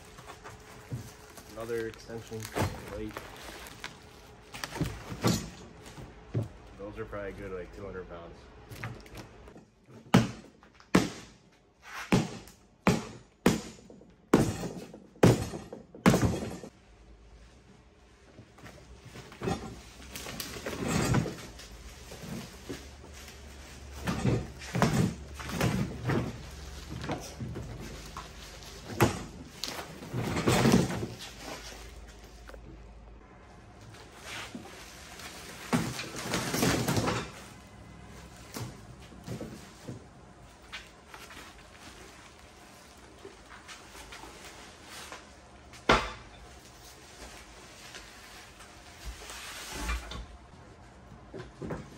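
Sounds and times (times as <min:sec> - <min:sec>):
bubble wrap rustling: 0:00.0 - 0:05.0, 0:33.9 - 0:36.8
steel frame thumping on concrete: 0:12.0 - 0:16.7.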